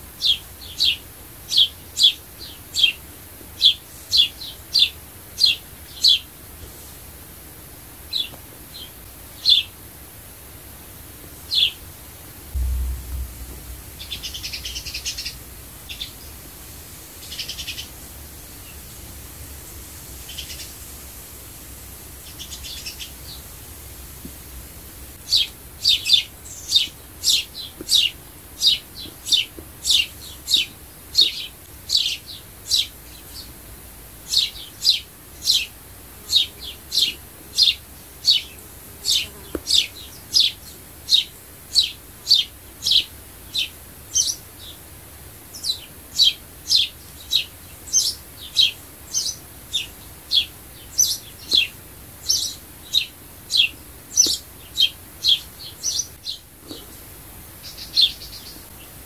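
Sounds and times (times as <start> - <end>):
sparrow chirping: 0.2 - 3.0, 3.6 - 6.2, 12.6 - 16.3, 17.2 - 18.9, 25.3 - 33.5, 39.1 - 44.7, 45.6 - 56.5.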